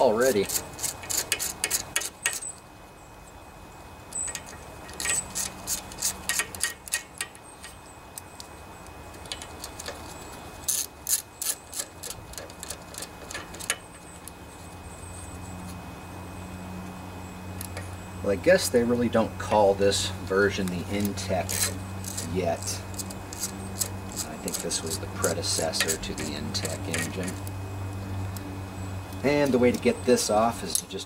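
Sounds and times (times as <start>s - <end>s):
socket ratchet clicking: 4.2s - 8.4s, 25.5s - 27.5s.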